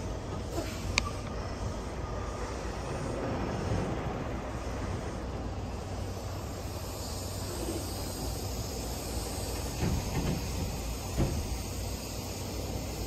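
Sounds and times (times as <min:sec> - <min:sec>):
diesel truck engine rumbling: 0:00.0 - 0:13.0
high hiss: 0:00.0 - 0:13.0
dull knocks: 0:09.6 - 0:11.6.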